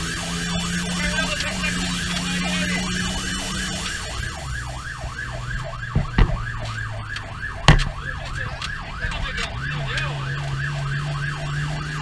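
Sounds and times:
fire engine siren yelping: 0.0 - 12.0
truck engine running: 0.0 - 12.0
loud knocks: 5.9 - 6.4.

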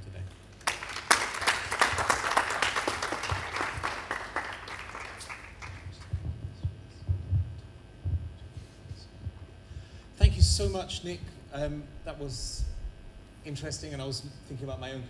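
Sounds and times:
audience applauding: 0.5 - 6.3
low thumps: 5.9 - 13.4.

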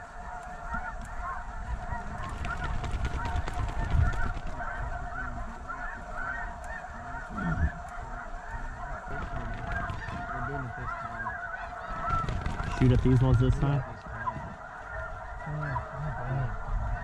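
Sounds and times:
flock of geese calling: 0.0 - 17.0.

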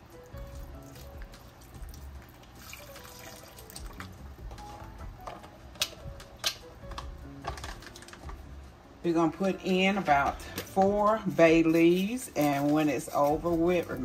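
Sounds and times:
soft background music: 0.0 - 14.0
liquid pouring into pot: 0.5 - 4.2.

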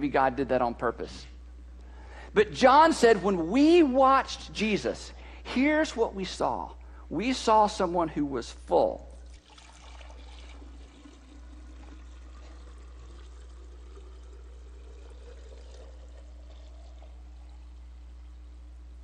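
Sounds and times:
low electrical hum: 0.0 - 19.0
liquid pouring into glass: 9.1 - 18.6.

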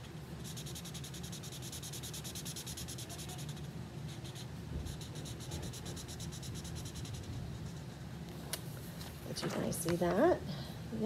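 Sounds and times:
marker scribbling on paper: 0.4 - 8.0.

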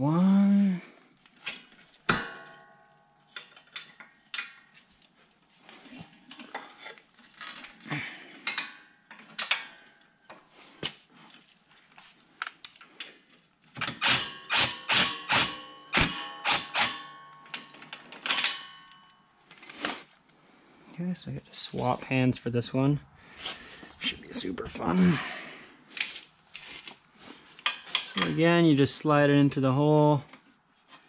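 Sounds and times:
metal tools clinking: 12.3 - 13.2, 15.7 - 19.8, 21.7 - 22.2, 25.9 - 26.4, 27.6 - 28.4
ratcheting wrench clicking: 13.8 - 17.0.

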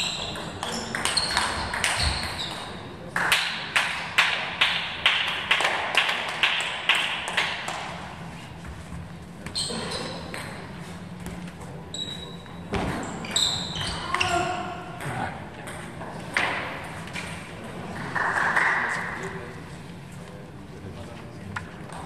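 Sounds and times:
table tennis ball bouncing: 0.1 - 7.9.

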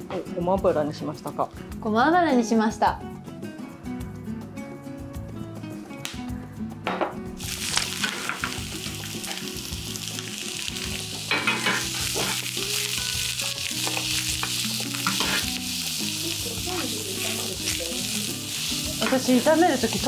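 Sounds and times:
vegetables sizzling in a frying pan: 7.4 - 20.0
metal tongs scraping a pan: 7.7 - 8.6, 10.8 - 12.9, 13.7 - 15.8.

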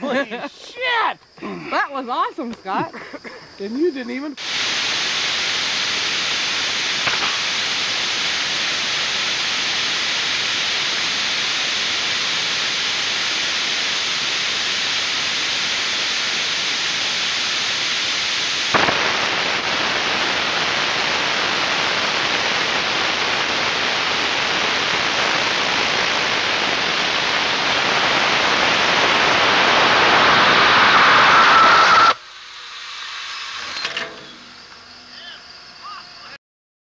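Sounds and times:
rocket motor rushing hiss: 4.0 - 36.0
sharp pop: 6.9 - 8.1, 18.7 - 20.4
whistling tone: 30.9 - 32.2.

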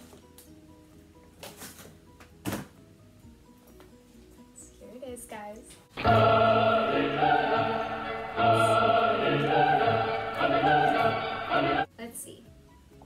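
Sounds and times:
choir singing held chords: 6.0 - 11.9.

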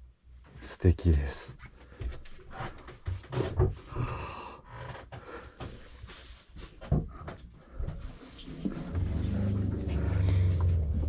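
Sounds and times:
rustling and light knocks: 1.6 - 3.9, 4.9 - 11.0.

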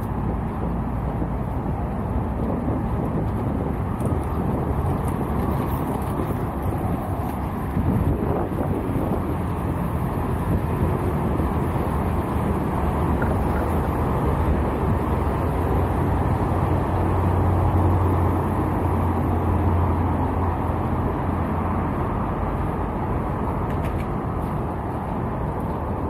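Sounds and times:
vehicle rumble: 0.0 - 26.0.

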